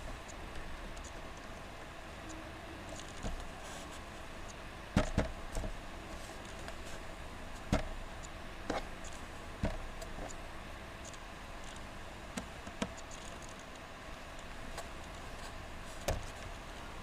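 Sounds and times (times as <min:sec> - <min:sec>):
steady background hiss: 0:00.0 - 0:17.0
computer mouse clicking: 0:00.3 - 0:01.5, 0:11.0 - 0:15.2.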